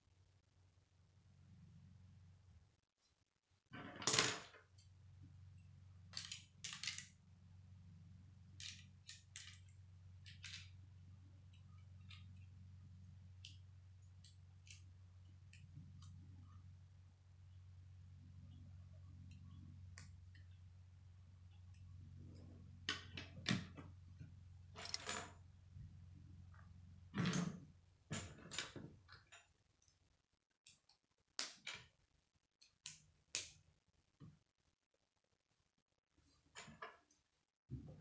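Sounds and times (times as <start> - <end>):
low steady hum: 3.8 - 30.4.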